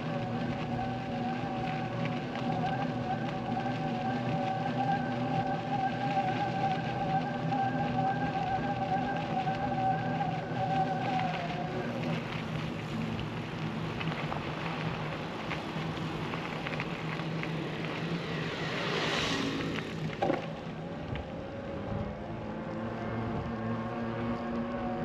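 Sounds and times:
vehicle passing close by: 0:17.6 - 0:20.2.

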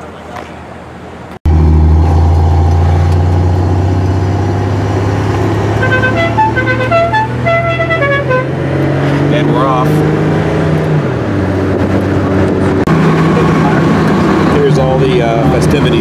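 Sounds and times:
musical car horn tune: 0:05.7 - 0:08.6.

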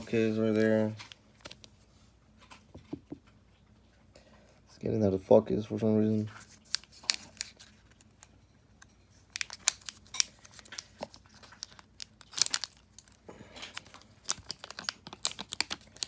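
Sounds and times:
foil wrapper crinkling and tearing: 0:06.4 - 0:08.3, 0:09.2 - 0:16.0.

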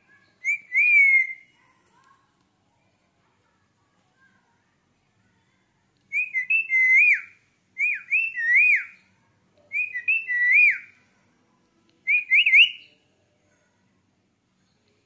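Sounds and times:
parakeet whistling: 0:00.4 - 0:01.5, 0:09.7 - 0:10.9.

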